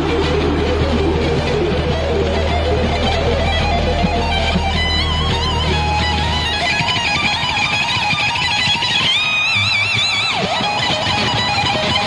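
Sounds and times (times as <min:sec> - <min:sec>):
band playing: 0:00.0 - 0:08.1
electric guitar solo: 0:00.0 - 0:12.0.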